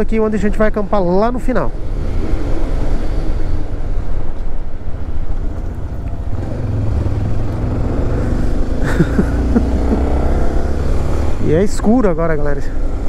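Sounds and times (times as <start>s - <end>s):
wind rumble: 0.0s - 11.8s
motorcycle engine running: 5.3s - 11.4s.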